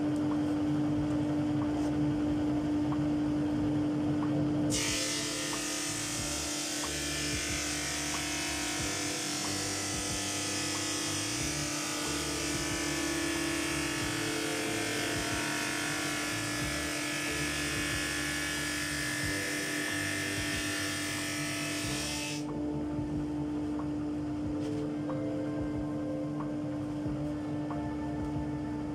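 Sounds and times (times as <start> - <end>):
machine humming: 0.0 - 28.9
drum sander hissing on wood: 4.7 - 22.5.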